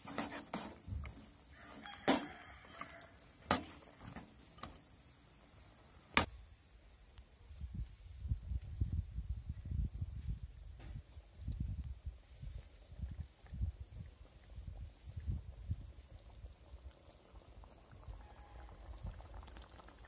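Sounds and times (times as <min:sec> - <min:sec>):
ladle scraping pot: 0:00.0 - 0:04.9.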